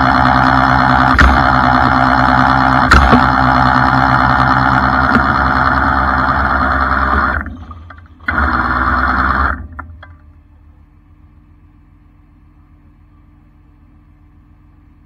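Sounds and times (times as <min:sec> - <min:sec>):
hydraulic winch running: 0:00.0 - 0:10.2
sharp knock: 0:02.9 - 0:03.4.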